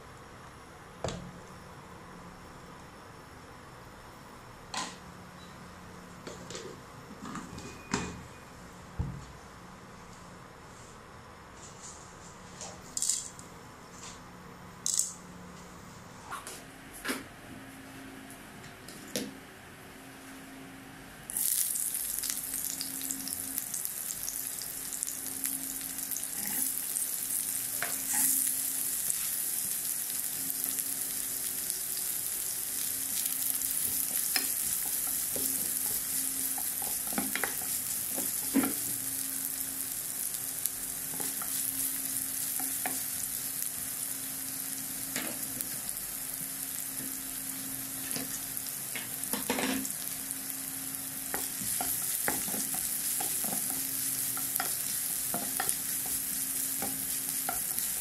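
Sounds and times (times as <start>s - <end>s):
food sizzling in hot oil: 21.3s - 58.0s.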